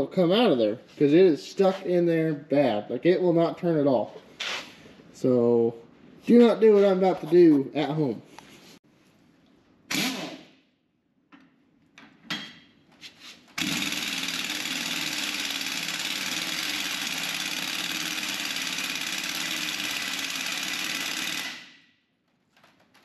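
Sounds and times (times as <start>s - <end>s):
pneumatic impact wrench hammering: 9.9s - 10.5s, 13.6s - 21.8s.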